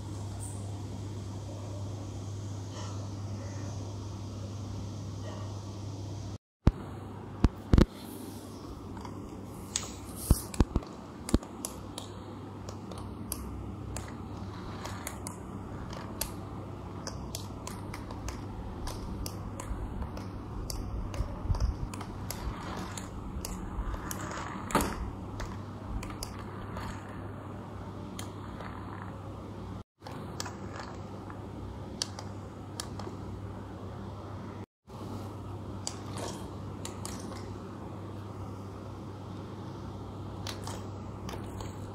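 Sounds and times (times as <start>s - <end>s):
toy truck motor and gears: 12.9s - 16.4s, 20.7s - 27.3s.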